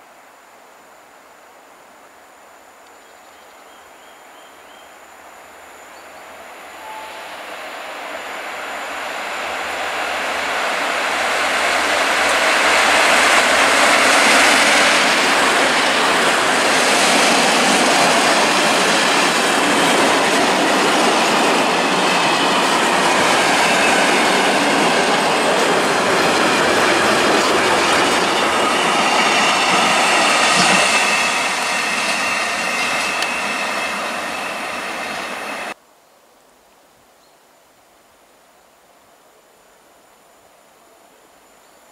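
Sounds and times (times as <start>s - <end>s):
train wagons rumbling: 9.1s - 35.8s
wheels clicking over rail joints: 29.3s - 31.8s.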